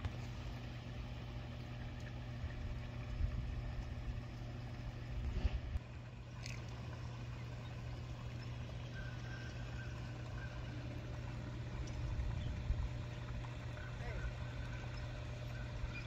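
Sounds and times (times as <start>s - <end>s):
low mechanical hum: 0.0s - 16.0s
wind rumble on microphone: 11.8s - 13.1s.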